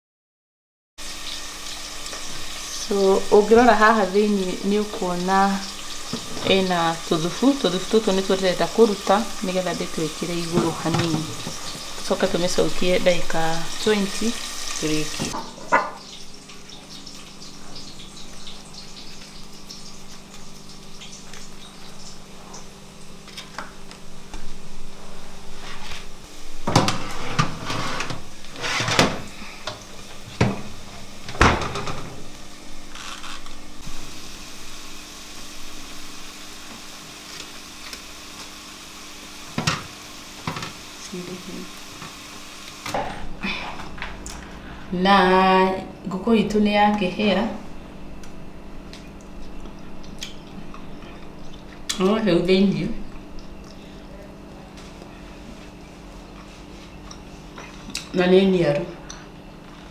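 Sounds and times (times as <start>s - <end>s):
steady low hum: 40.9s - 59.9s.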